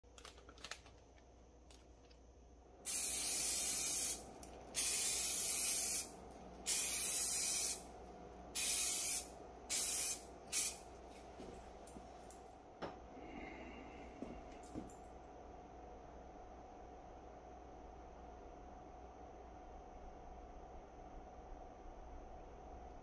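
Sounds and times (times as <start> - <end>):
spray can hissing: 2.9 - 7.8, 8.6 - 10.8.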